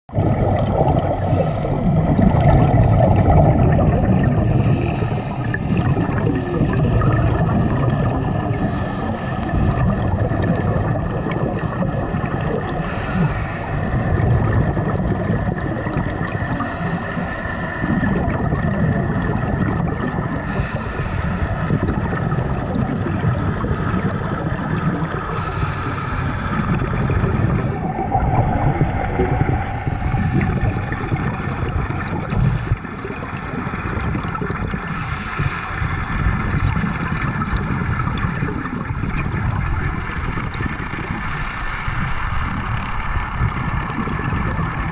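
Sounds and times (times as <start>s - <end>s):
low rumble of water: 0.0s - 44.9s
regulator breathing hiss: 1.1s - 2.2s, 4.5s - 5.6s, 8.6s - 9.5s, 12.8s - 13.9s, 16.6s - 18.0s, 20.4s - 21.7s, 25.3s - 26.7s, 28.4s - 30.7s, 34.9s - 36.2s, 41.3s - 42.4s.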